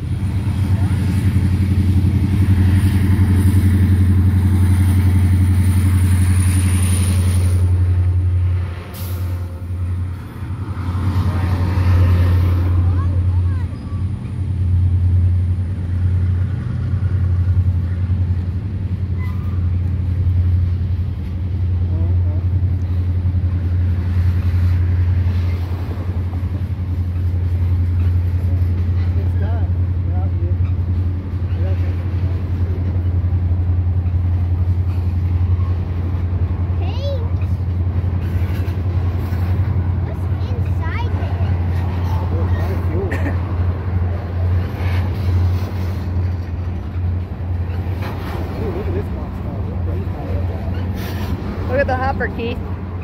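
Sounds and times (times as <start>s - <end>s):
freight train rumbling past: 0.0s - 53.0s
locomotive engines droning: 0.0s - 53.0s.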